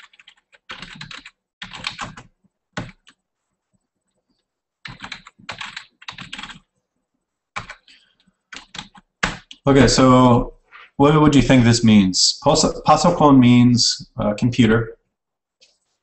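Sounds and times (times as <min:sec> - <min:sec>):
typing on computer keyboard: 0:00.0 - 0:03.2, 0:04.8 - 0:06.7, 0:07.6 - 0:07.9, 0:08.5 - 0:09.6.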